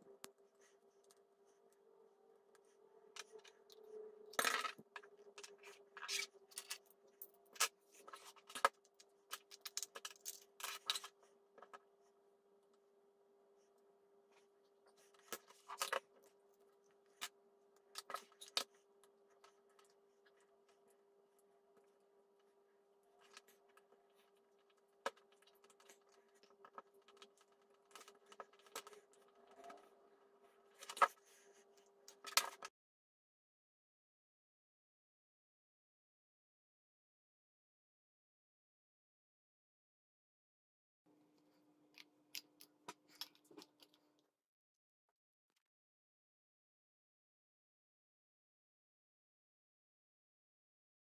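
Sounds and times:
faint steady hum: 0:00.0 - 0:32.7.

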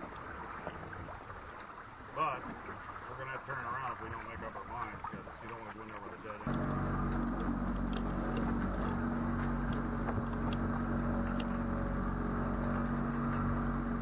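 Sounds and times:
boat motor humming: 0:06.5 - 0:14.0.

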